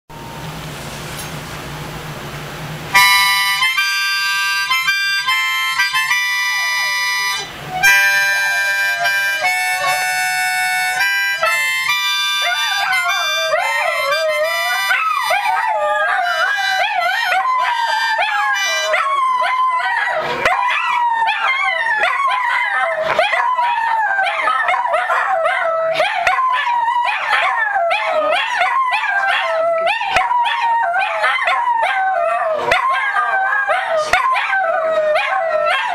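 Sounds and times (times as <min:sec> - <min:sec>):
harmonica chords: 0:03.0 - 0:19.3
dogs howling: 0:08.1 - 0:35.9.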